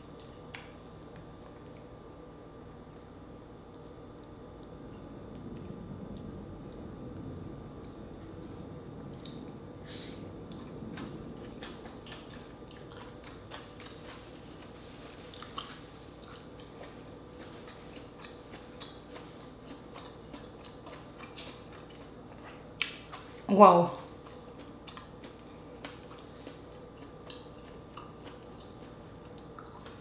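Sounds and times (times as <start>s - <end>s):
steady low hum: 0.0s - 30.0s
person chewing: 9.0s - 23.4s, 24.2s - 30.0s.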